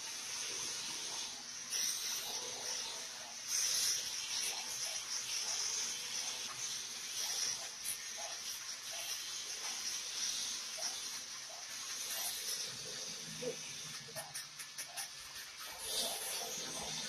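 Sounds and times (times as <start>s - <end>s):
arc welding frying hiss: 0.0s - 17.0s.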